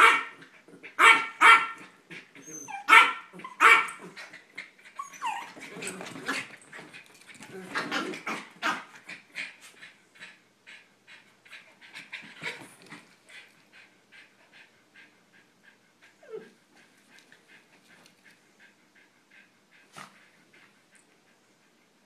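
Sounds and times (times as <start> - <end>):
small dog panting: 9.0 - 22.0.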